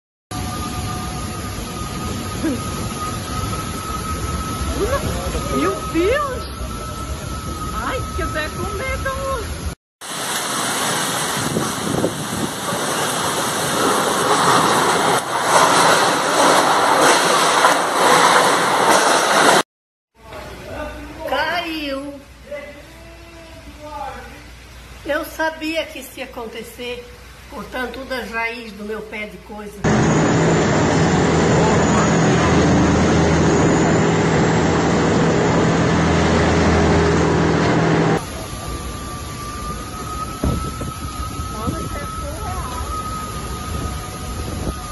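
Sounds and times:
heavy rain pouring: 0.3 - 19.6, 29.8 - 44.9
boat engine droning: 0.4 - 9.8, 29.8 - 44.9
strong wind: 0.4 - 19.6, 29.8 - 44.9
churning river water: 10.0 - 19.0.

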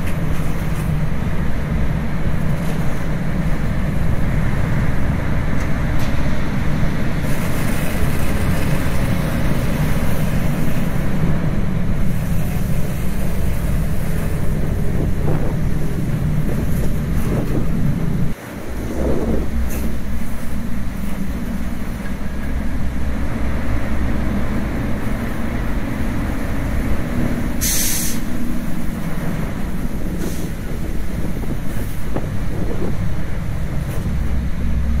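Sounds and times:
fire truck engine and water pump: 0.0 - 35.0
water jet spraying: 27.3 - 32.5
short burst of hiss: 27.6 - 28.3.

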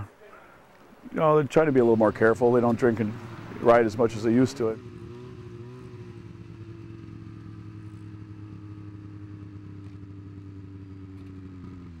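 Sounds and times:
snowmobile engine running: 1.6 - 12.0.

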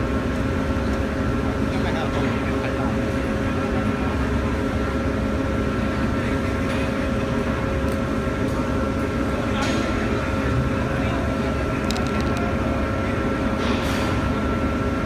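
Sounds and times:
heavy machinery drone: 0.0 - 15.0.

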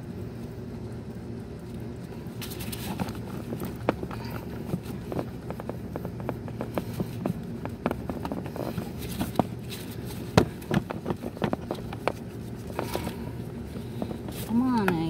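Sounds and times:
low steady hum: 0.0 - 15.0
hands tapping on hoses: 3.0 - 15.0.

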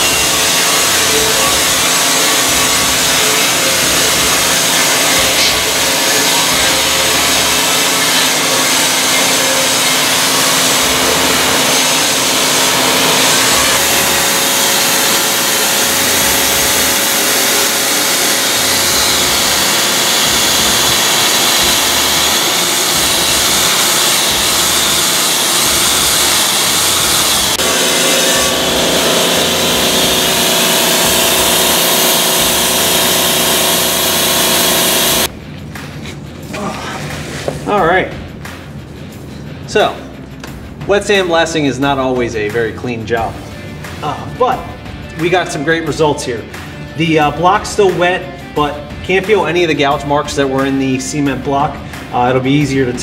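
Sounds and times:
pressure washer hum: 0.0 - 35.3.

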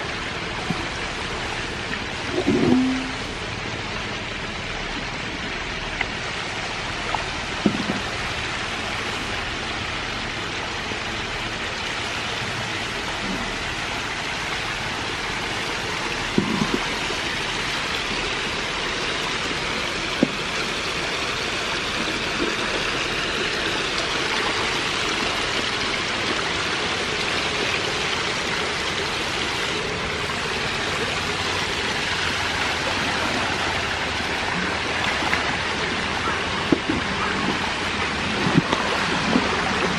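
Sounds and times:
water pouring and splashing into tank: 0.0 - 3.4, 11.7 - 39.9.

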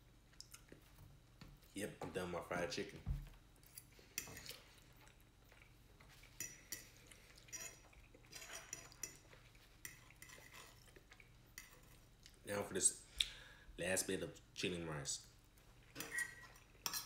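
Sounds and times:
fork scraping and clinking on plate: 6.2 - 11.0, 15.9 - 17.0.

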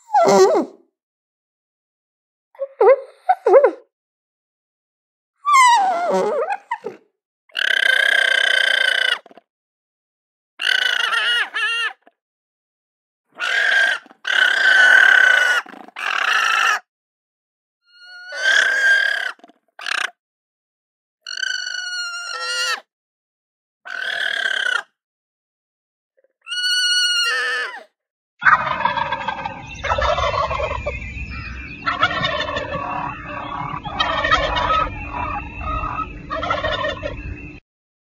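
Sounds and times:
turkey gobbling: 10.6 - 11.4, 28.4 - 37.4
steady background hum: 28.6 - 37.6
llamas calling: 31.4 - 37.1.

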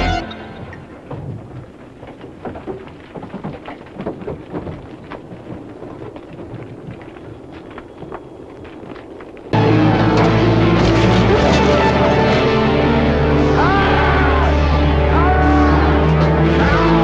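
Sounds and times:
stones and gravel crackling: 0.6 - 9.6
heavy truck rumbling: 9.5 - 17.0.

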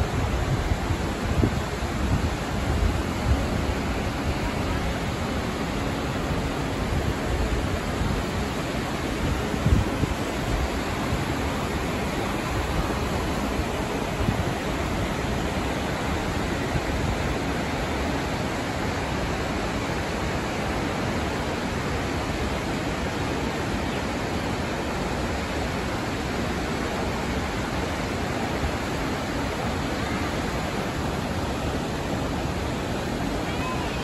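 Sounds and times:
river tumbling over rocks: 0.0 - 34.0
waterfall rushing: 0.0 - 34.0.

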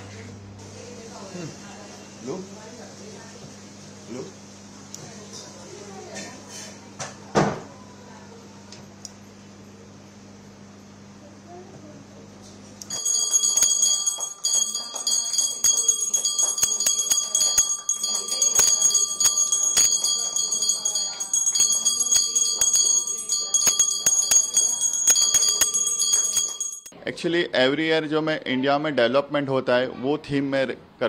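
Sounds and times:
hand bell ringing rapidly: 12.9 - 26.9.

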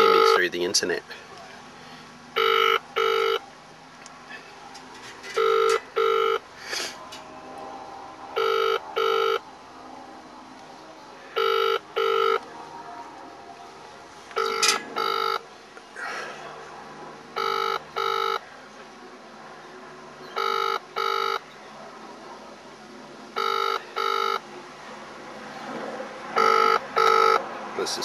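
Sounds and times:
telephone ringback tone: 0.0 - 0.4, 2.4 - 3.4, 5.4 - 6.4, 8.4 - 9.4, 11.4 - 12.4, 14.4 - 15.4, 17.4 - 18.4, 20.4 - 21.4, 23.4 - 24.4, 26.4 - 27.4.

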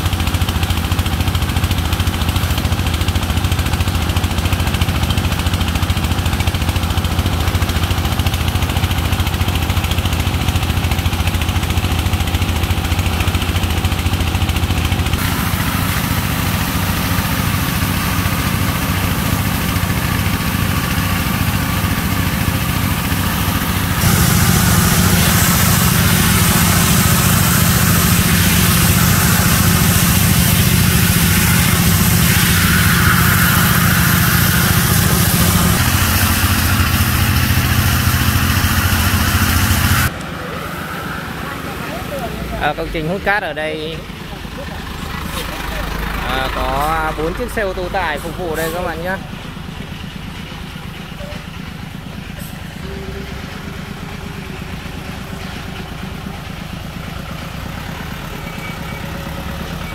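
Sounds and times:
water pump motor running: 0.0 - 59.9
water jet splashing on wet sand: 15.2 - 42.5.

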